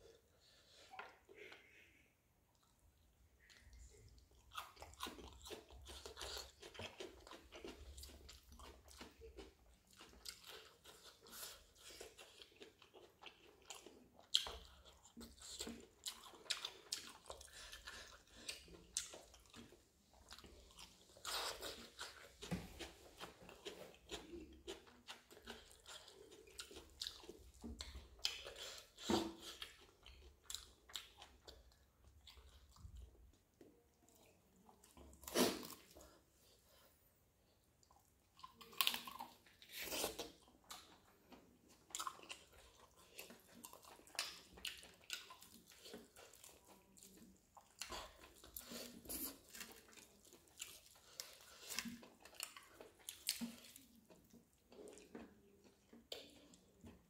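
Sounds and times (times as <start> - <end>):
person chewing chicken: 0.0 - 57.0.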